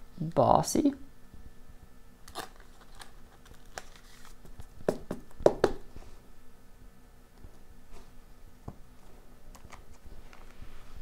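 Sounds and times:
card rustling: 0:02.3 - 0:04.7.

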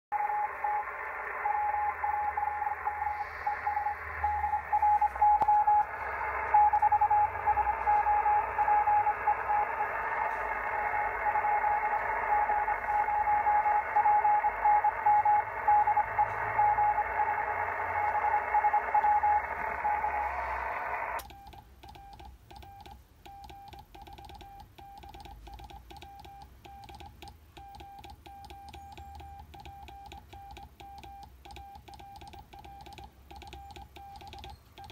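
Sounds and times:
receiver hiss: 0:00.1 - 0:22.4
morse code beeps: 0:00.1 - 0:34.9.

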